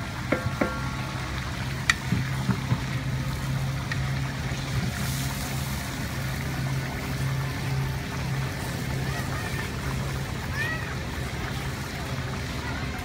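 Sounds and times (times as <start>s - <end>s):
meat frying: 0.0s - 13.0s
metal paddle scraping pot: 0.2s - 1.2s.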